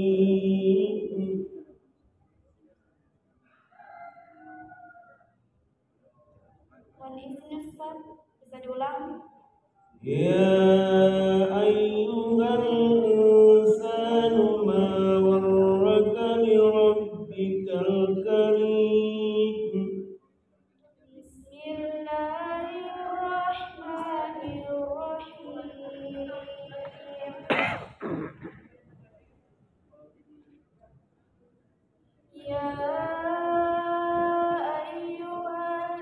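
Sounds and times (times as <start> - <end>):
woman reciting melodically: 7.0 - 9.4, 21.0 - 27.6, 32.3 - 36.0.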